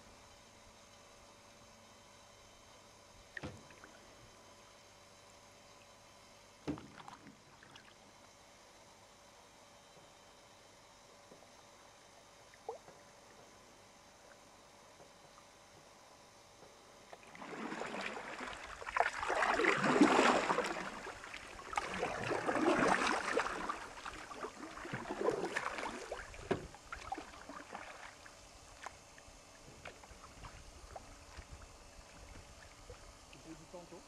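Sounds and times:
canoe paddles splashing water: 0:06.7 - 0:08.0, 0:17.1 - 0:29.0, 0:29.6 - 0:33.4.

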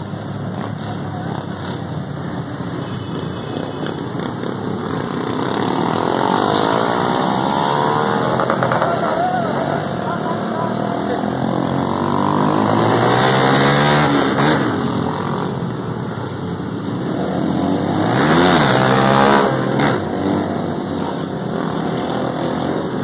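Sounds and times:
motorcycle engine revving: 0:00.0 - 0:15.8
road and wind noise: 0:00.0 - 0:23.0.

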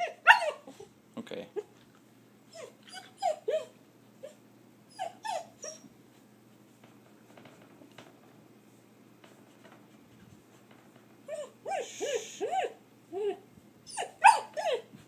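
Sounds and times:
puppy whining: 0:00.0 - 0:01.0, 0:02.5 - 0:05.9, 0:11.2 - 0:15.0.

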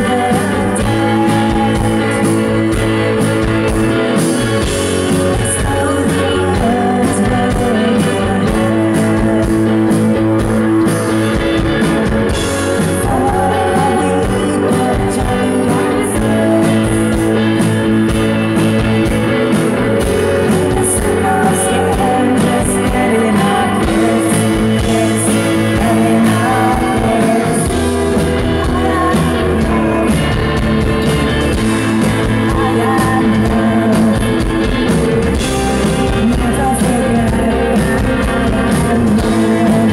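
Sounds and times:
woman singing: 0:00.0 - 0:03.8, 0:04.4 - 0:10.6, 0:11.8 - 0:18.2, 0:19.6 - 0:39.9
rock band playing live: 0:00.0 - 0:39.9.

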